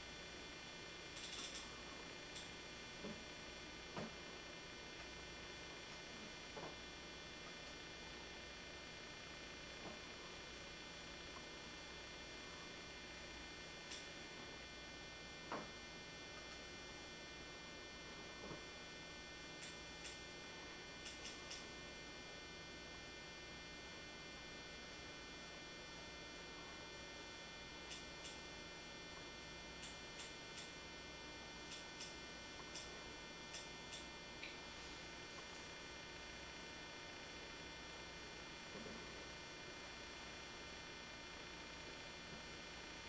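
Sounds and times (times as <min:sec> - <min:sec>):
electrical mains hum with whine: 0:00.0 - 0:43.0
soft ticks: 0:19.6 - 0:20.2, 0:21.0 - 0:21.6, 0:33.5 - 0:34.6.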